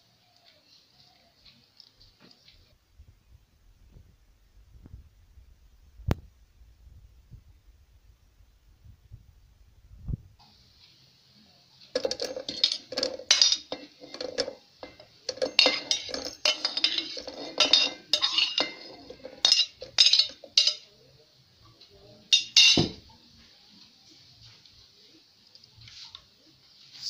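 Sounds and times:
metal utensils clinking on cookware: 12.0 - 21.0, 22.3 - 23.0.

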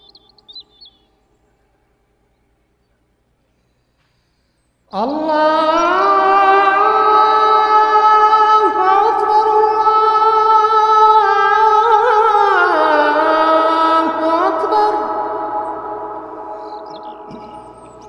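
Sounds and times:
person chanting long notes: 4.9 - 18.0.

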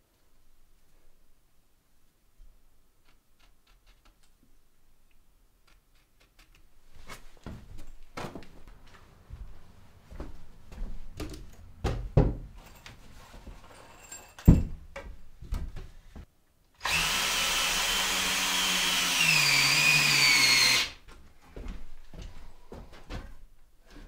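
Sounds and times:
wooden knocks and thumps: 11.1 - 12.6, 14.4 - 16.3
cordless drill driving a screw: 16.8 - 21.0.

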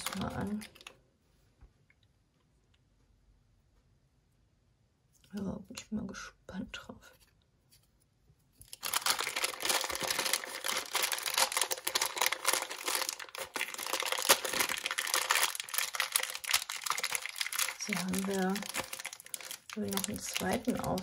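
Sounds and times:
plastic bag crinkling: 0.0 - 0.9, 8.6 - 21.0.

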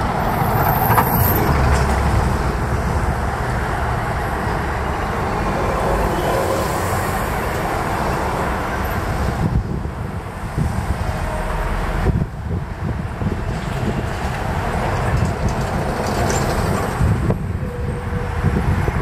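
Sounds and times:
vehicles passing: 0.0 - 19.0.

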